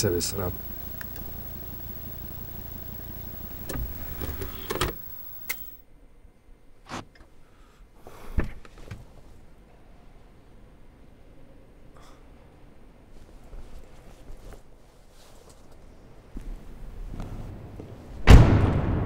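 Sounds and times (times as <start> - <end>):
cd player mechanical clicks: 0.0 - 5.8
low steady hum: 0.0 - 5.8.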